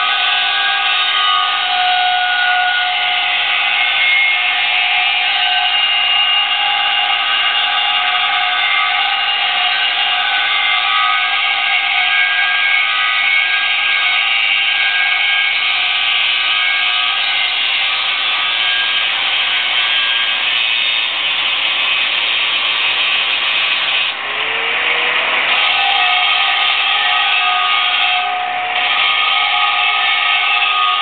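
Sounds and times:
angle grinder grinding steel: 0.0s - 31.0s
lower tone rising: 24.1s - 25.9s.

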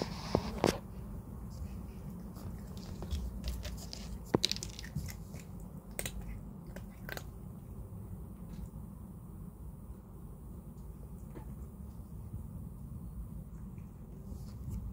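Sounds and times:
cat crunching dry kibble: 0.1s - 8.8s.

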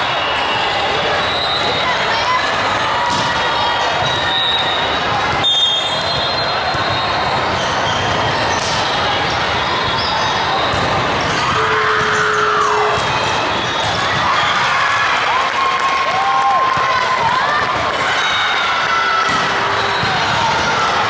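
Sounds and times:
echoing din of sports hall: 0.0s - 21.0s.

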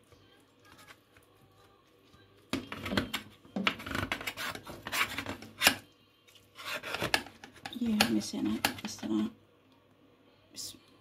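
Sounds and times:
metal spatula scraping pot: 2.7s - 5.8s, 6.5s - 9.1s.

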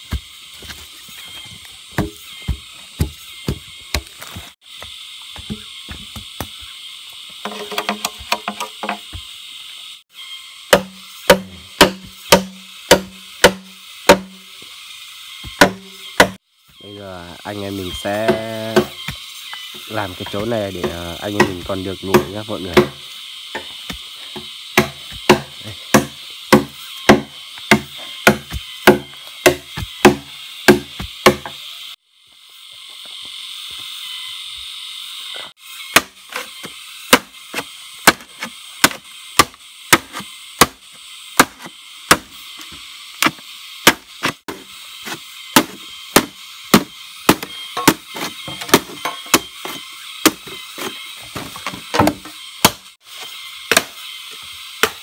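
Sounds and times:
blade chopping wood: 0.0s - 6.7s, 7.4s - 9.3s, 10.7s - 14.4s, 15.4s - 16.4s, 17.9s - 31.7s, 35.9s - 52.9s, 53.6s - 55.0s
steady hiss: 0.0s - 55.0s.

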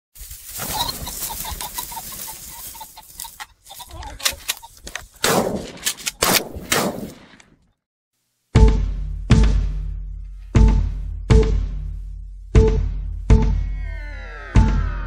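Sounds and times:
wings flapping: 0.2s - 5.0s
pheasant cackling: 0.5s - 5.0s
shotgun shots echoing: 5.2s - 7.4s
bass-heavy musical hit: 8.6s - 15.0s.

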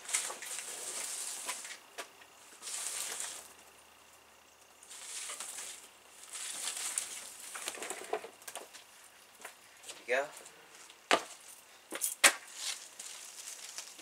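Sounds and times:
leafy branches rustling: 0.0s - 9.4s, 12.4s - 14.0s
twigs cracking: 4.8s - 8.7s.

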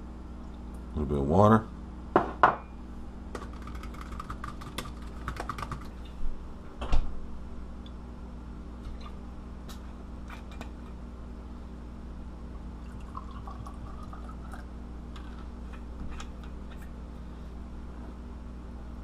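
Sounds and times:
liquid pouring into a glass: 12.8s - 14.7s.

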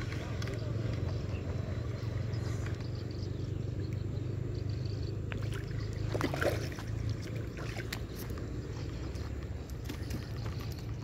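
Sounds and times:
fish splashing in water: 5.3s - 11.0s.

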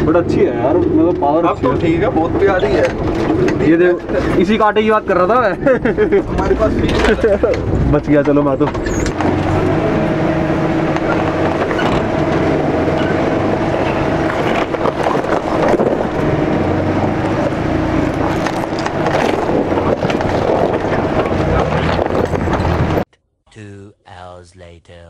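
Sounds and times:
engine running under load: 0.0s - 23.0s
tyres crunching on loose stones: 14.2s - 16.3s, 17.1s - 22.9s.

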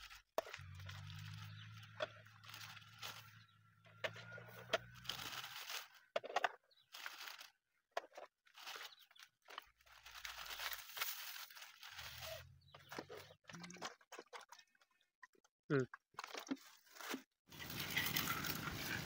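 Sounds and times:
plastic bag rustling: 0.0s - 3.4s, 4.9s - 6.0s, 6.9s - 7.5s, 8.5s - 12.6s.

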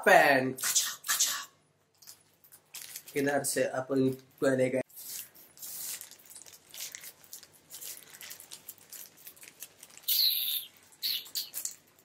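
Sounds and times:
plastic crinkles and clicks: 1.9s - 3.4s, 5.1s - 12.0s
hissing rasp of plastic tearing: 4.9s - 11.9s.

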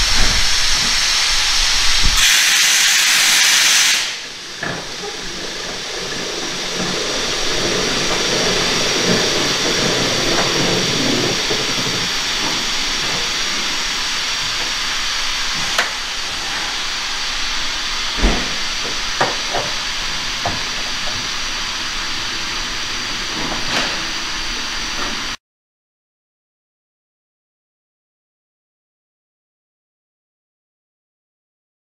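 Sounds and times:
air hissing from train: 0.0s - 25.4s.

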